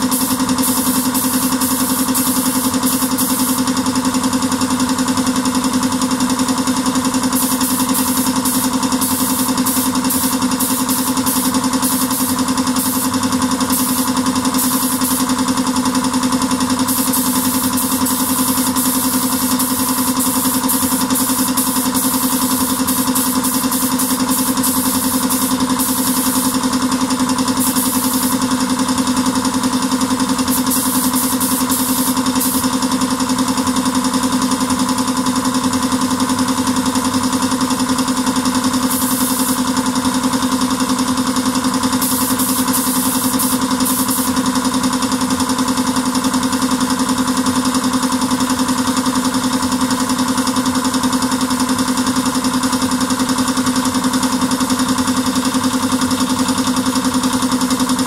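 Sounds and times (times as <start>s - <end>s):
spray gun air hiss: 0.0s - 4.3s, 6.6s - 33.1s, 38.7s - 40.0s, 41.7s - 44.8s.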